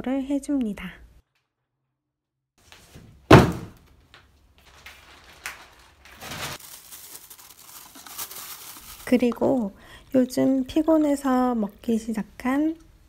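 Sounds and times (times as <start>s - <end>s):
cardboard box thunk on floor: 3.0s - 3.8s
plastic bag rustling: 3.8s - 11.0s.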